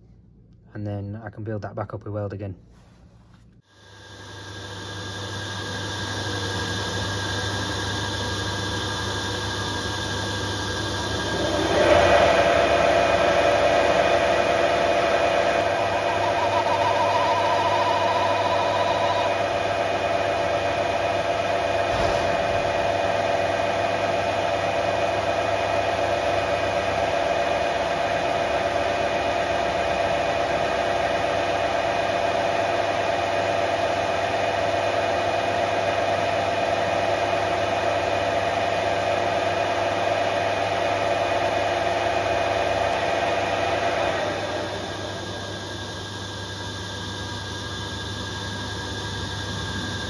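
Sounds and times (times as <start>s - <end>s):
metal lathe whining: 4.9s - 34.6s, 41.0s - 50.0s.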